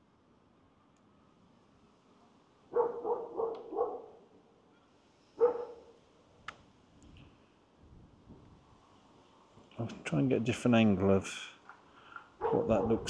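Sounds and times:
dog barking: 2.7 - 4.2, 5.4 - 6.0, 12.4 - 13.0.

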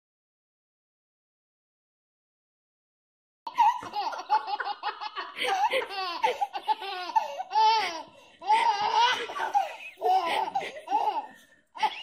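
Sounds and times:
baby laughing: 3.5 - 12.0.

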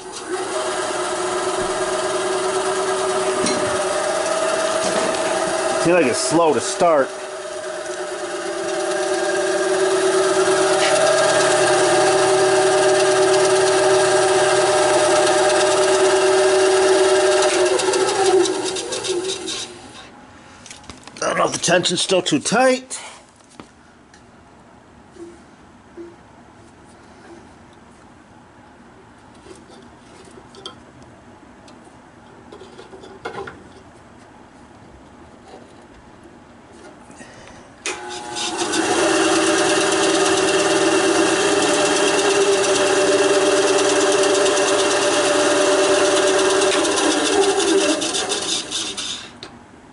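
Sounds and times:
band saw motor humming: 0.0 - 20.1, 37.9 - 49.4.

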